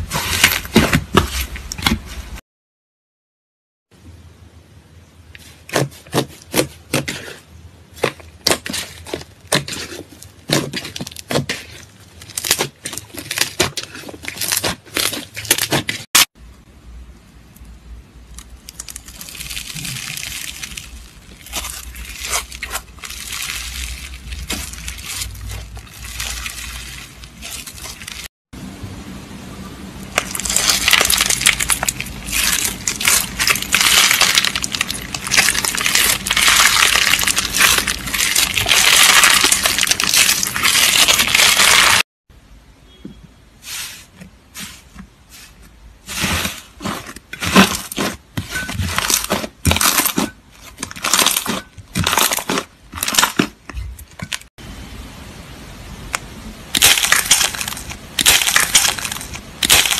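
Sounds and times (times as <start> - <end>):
dense crunching of beaded slime: 0.0 - 2.3, 5.4 - 16.3, 18.3 - 28.3, 30.1 - 42.1, 43.6 - 53.6, 56.7 - 59.9
slime crackling: 8.0 - 16.1, 18.3 - 28.3, 30.2 - 42.0, 46.1 - 53.6, 56.8 - 59.9.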